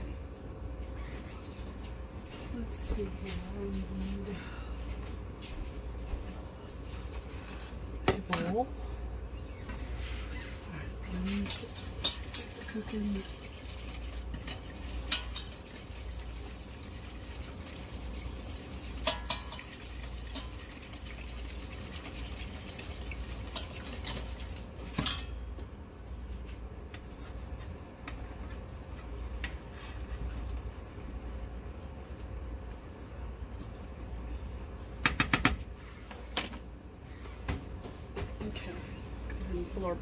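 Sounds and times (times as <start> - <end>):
utensils clinking against pots: 11.0 - 13.3, 14.3 - 15.6, 19.0 - 20.7, 24.9 - 25.4.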